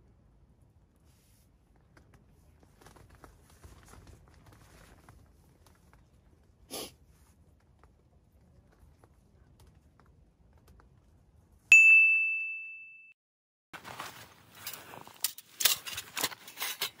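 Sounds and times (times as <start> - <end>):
faint rustles and clicks: 0.9 - 11.6, 13.8 - 17.0
person sniffing: 6.7 - 7.0.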